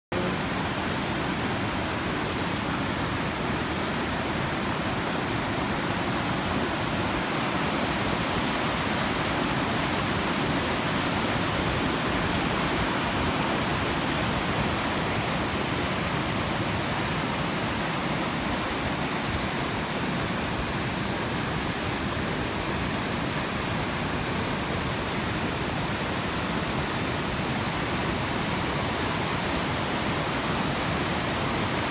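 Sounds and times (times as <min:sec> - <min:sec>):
river rushing over rocks: 0:00.1 - 0:31.9.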